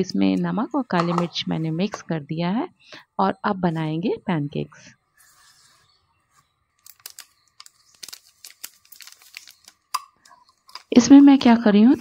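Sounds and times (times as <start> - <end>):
powder being shaken out: 6.8 - 9.8
sachet tearing and crinkling: 6.8 - 10.9.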